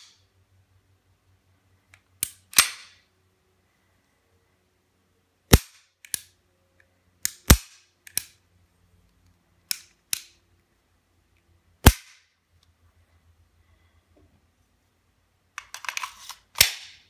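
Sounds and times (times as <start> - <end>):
pistol metal parts clacking: 1.9 - 3.1, 7.2 - 8.4, 9.6 - 10.4, 15.5 - 17.0.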